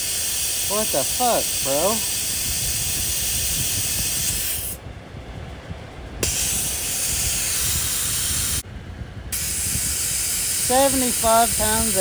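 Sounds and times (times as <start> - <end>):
air hissing out of tyre: 0.0 - 4.8, 6.2 - 8.6, 9.3 - 12.0.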